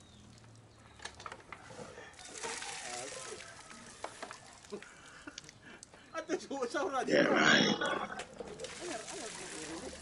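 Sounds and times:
water gushing out: 0:02.2 - 0:04.8, 0:08.5 - 0:10.0.

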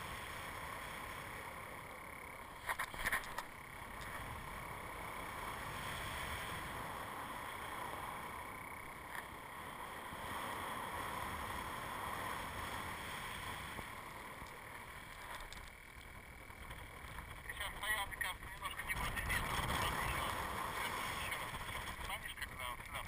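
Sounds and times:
wind noise on camera: 0:10.1 - 0:23.0.

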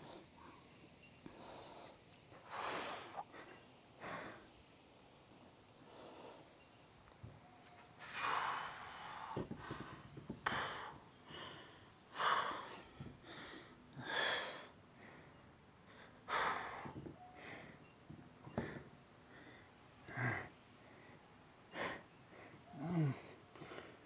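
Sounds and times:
man breathing hard: 0:08.0 - 0:17.8.

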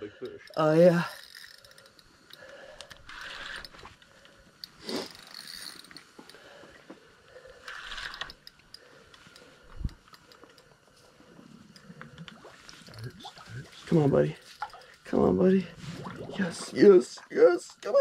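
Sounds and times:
fishing reel clicking and ratcheting: 0:00.2 - 0:06.5, 0:07.4 - 0:10.9, 0:13.9 - 0:15.6.

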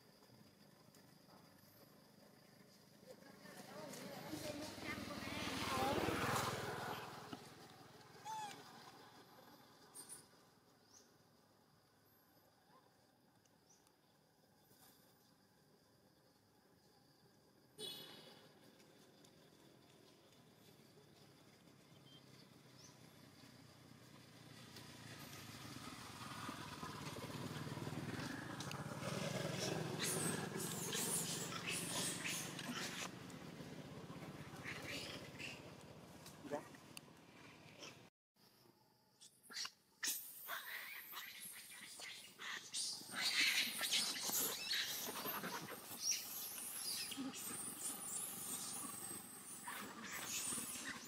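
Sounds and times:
vehicle engine approaching: 0:03.6 - 0:10.0, 0:21.4 - 0:38.0
young monkeys squealing: 0:08.2 - 0:08.8, 0:29.5 - 0:33.1, 0:39.4 - 0:51.0.

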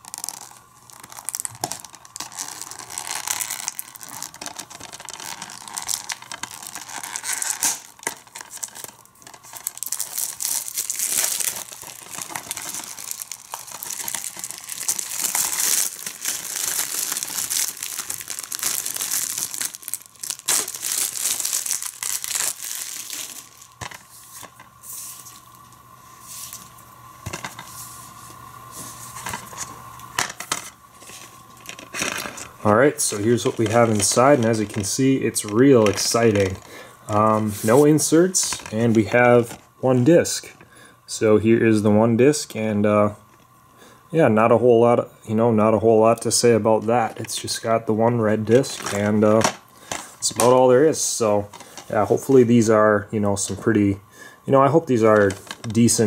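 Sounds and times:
plastic wrap crinkling and tearing: 0:00.0 - 0:24.5, 0:31.0 - 0:39.7, 0:48.4 - 0:50.6, 0:54.9 - 0:56.0.

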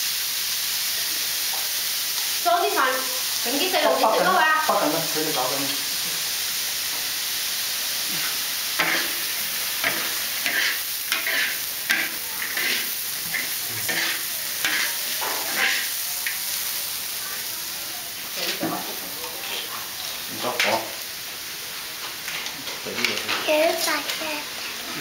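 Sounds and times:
food sizzling in a wok: 0:00.0 - 0:25.0
spatula scraping a wok: 0:08.1 - 0:16.0.

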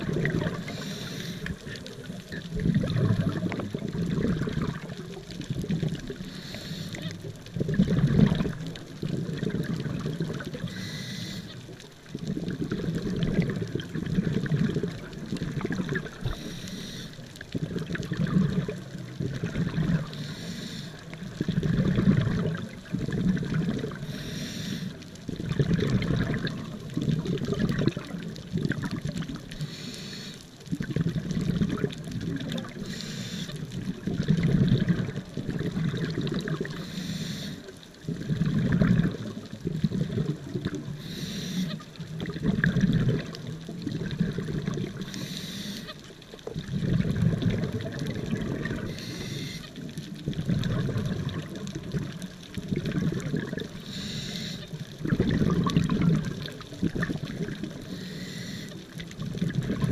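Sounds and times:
exhaled bubbles rumbling underwater: 0:00.0 - 0:59.9
regulator inhale hiss: 0:00.6 - 0:01.8, 0:06.2 - 0:07.1, 0:10.7 - 0:11.6, 0:16.2 - 0:17.2, 0:20.1 - 0:21.1, 0:24.0 - 0:25.0, 0:29.6 - 0:30.5, 0:32.8 - 0:33.6, 0:36.8 - 0:37.7, 0:41.0 - 0:41.8, 0:45.0 - 0:45.9, 0:48.8 - 0:49.7, 0:53.8 - 0:54.8, 0:57.9 - 0:58.8.

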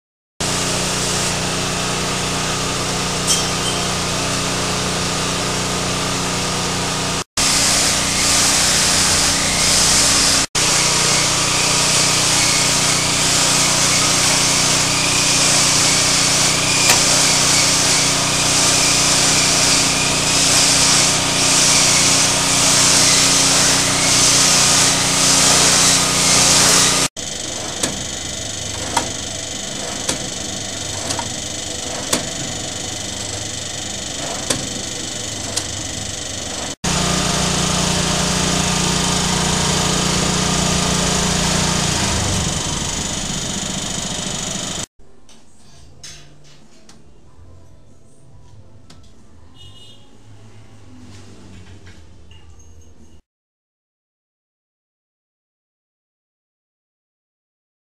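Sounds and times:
slicing machine running: 0:00.4 - 0:44.9.

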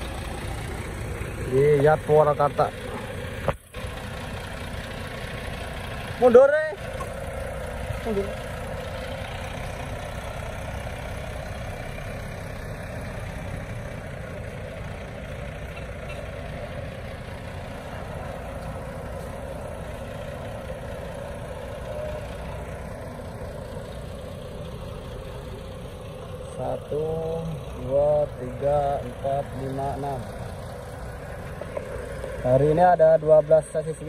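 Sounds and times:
diesel engine running at low speed: 0:00.0 - 0:34.0.

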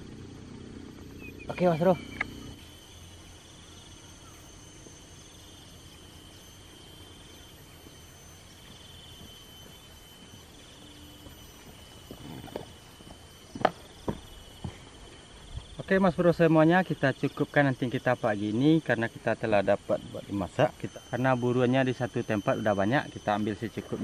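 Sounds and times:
high-pitched insect drone: 0:00.0 - 0:24.0
sharp click: 0:02.1 - 0:02.4.

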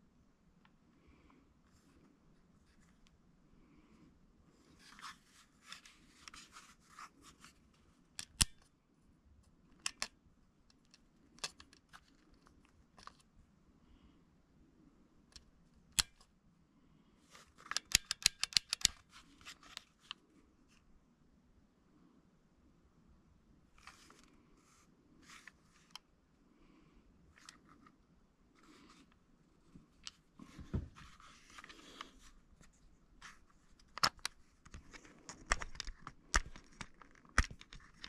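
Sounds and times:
pistol clicking and handling: 0:17.6 - 0:19.0.

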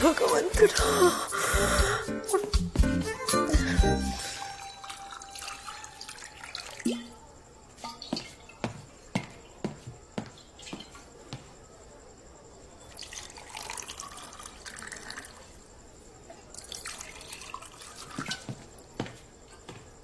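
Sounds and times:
glassware clinking: 0:04.3 - 0:07.1
water pouring into glass: 0:04.3 - 0:07.2, 0:12.9 - 0:15.4, 0:16.5 - 0:18.4.

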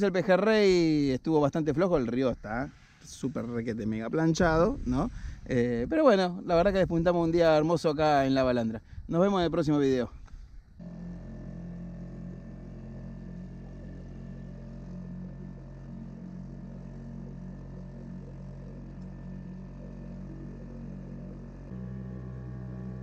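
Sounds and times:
small boat motor drone: 0:10.2 - 0:23.0
water rushing along hulls: 0:10.8 - 0:23.0.

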